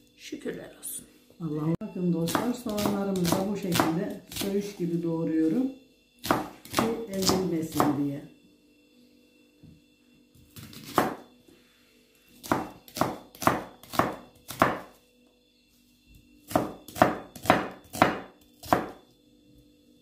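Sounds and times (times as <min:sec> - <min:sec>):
knife slicing an onion: 0:02.2 - 0:04.7, 0:06.2 - 0:08.0, 0:10.4 - 0:11.3, 0:12.4 - 0:15.0, 0:16.4 - 0:19.1.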